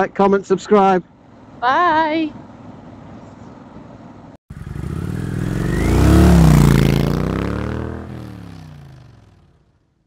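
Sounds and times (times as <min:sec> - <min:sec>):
motorcycle passing by: 0:04.5 - 0:10.0.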